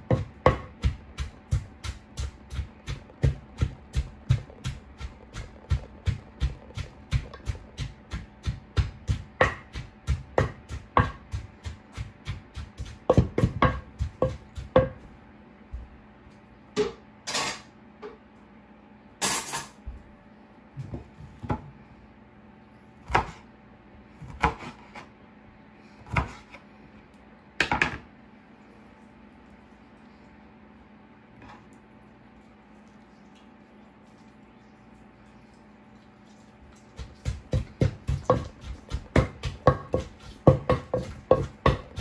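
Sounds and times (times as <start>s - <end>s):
pestle pounding in wooden mortar: 0.0s - 15.1s, 36.8s - 42.0s.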